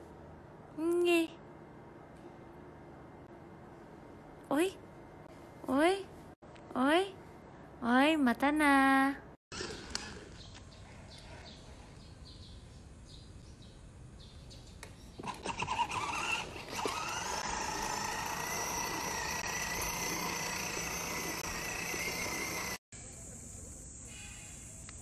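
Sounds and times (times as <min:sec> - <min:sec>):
toy electric motor whine: 0:09.5 - 0:10.3, 0:15.2 - 0:22.8.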